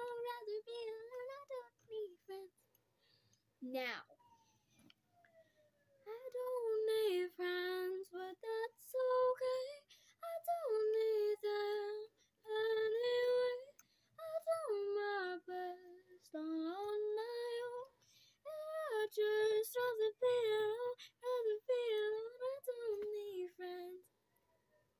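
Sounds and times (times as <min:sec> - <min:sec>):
girl singing unaccompanied: 0:00.0 - 0:02.6, 0:06.0 - 0:24.0.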